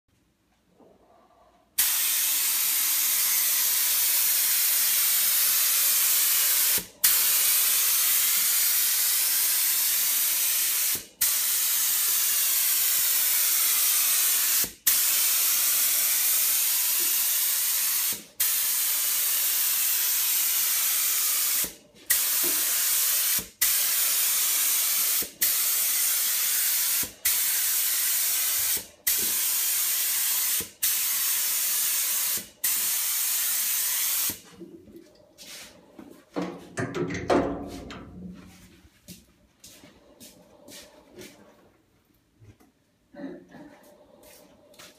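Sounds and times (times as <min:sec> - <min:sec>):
spray gun hissing: 0:01.8 - 0:34.4.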